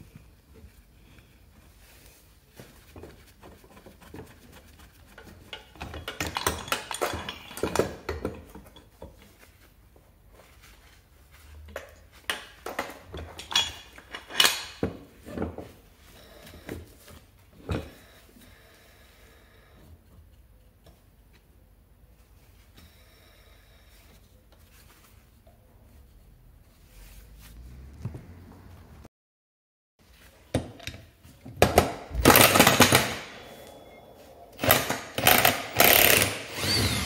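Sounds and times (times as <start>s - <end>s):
metal tools clinking and clattering: 5.5s - 8.9s.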